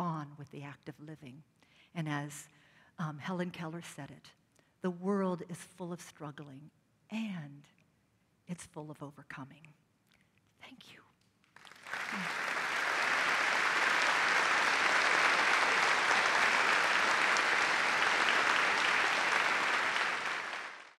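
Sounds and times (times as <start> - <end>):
audience applauding: 11.5 - 21.0.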